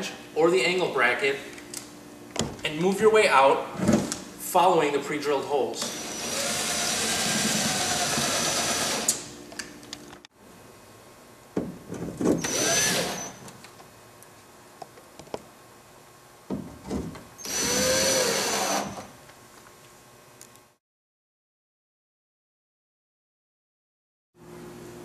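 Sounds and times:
cordless drill driving screws: 5.8s - 9.2s, 12.4s - 13.4s, 17.4s - 19.1s.

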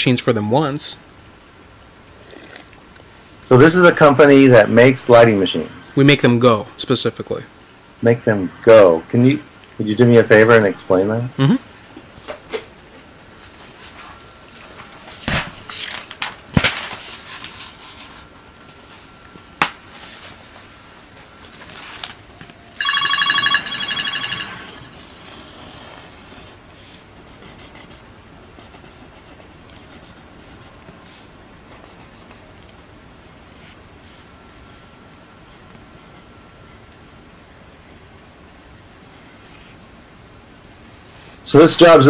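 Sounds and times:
paper rustling: 13.8s - 19.1s, 19.9s - 22.6s
trilling phone ring: 22.8s - 25.2s
pencil scratching on paper: 25.0s - 28.0s, 28.6s - 32.4s.

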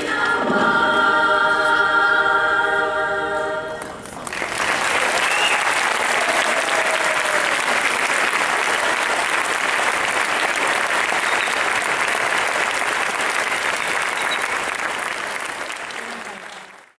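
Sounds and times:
audience applauding: 4.0s - 16.9s.

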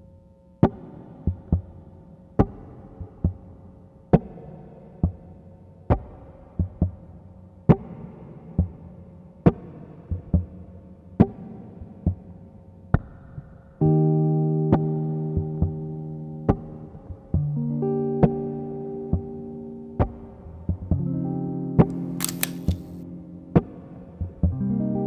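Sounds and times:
sharp loud clicks: 21.9s - 23.0s.

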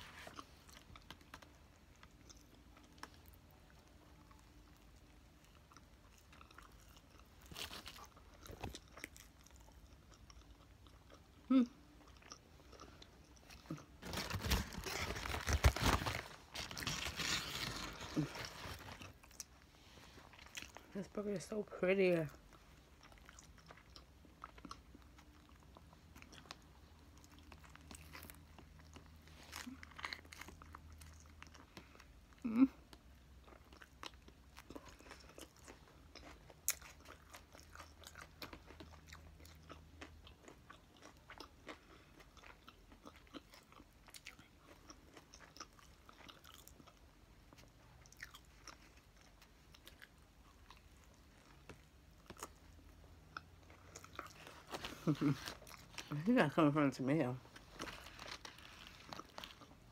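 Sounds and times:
chewing a hamburger: 0.0s - 21.0s, 22.2s - 56.8s, 57.4s - 59.9s.

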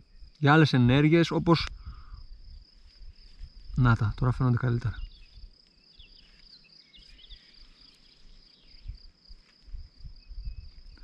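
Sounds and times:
faint low bumps: 0.0s - 6.4s, 8.1s - 11.0s
insect trill: 0.0s - 11.0s
bird chirps: 4.0s - 9.1s.

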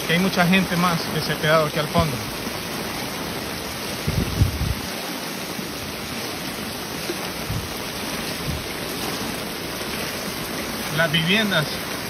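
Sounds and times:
heavy rain on water: 0.0s - 12.0s
dull low thumps: 4.0s - 4.9s, 7.4s - 7.8s.

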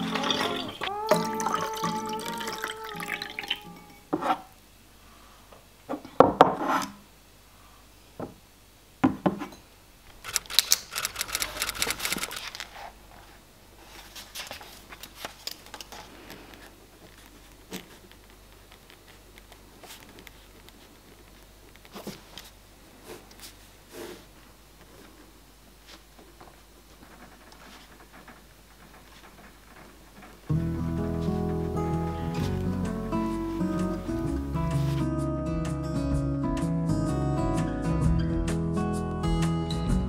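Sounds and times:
water pouring into glass: 0.0s - 4.0s
paper rustling: 10.2s - 24.2s, 26.9s - 35.1s.

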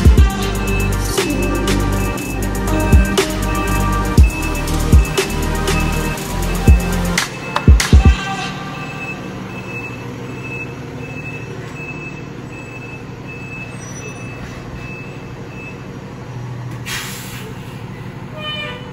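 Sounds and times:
back-up alarm beeping: 0.0s - 15.9s
diesel engine idling: 0.0s - 18.9s
air brake hiss: 16.8s - 17.9s.

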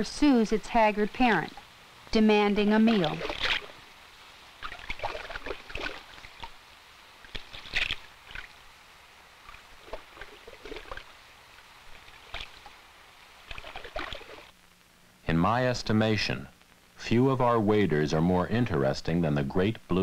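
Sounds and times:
water splashing: 2.6s - 3.8s, 4.6s - 6.6s, 7.2s - 8.6s, 9.4s - 11.2s, 11.8s - 12.8s, 13.4s - 14.5s.

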